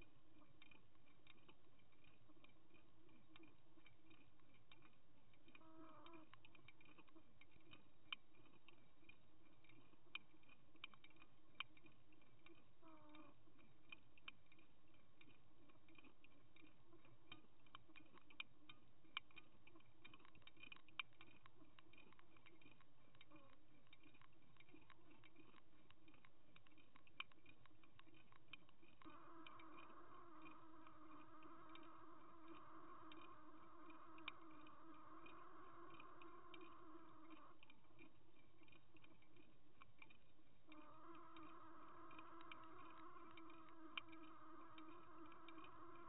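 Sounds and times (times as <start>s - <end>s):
low underwater hum: 0.0s - 46.0s
small irregular clicks: 0.0s - 46.0s.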